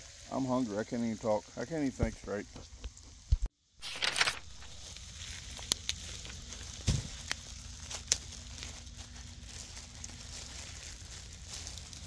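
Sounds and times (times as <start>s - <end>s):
sharp clicks and crinkles: 3.8s - 12.0s.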